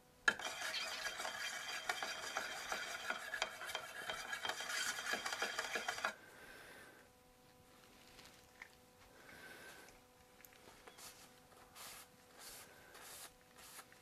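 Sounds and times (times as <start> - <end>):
stirring scraping inside a can: 0.3 - 6.2.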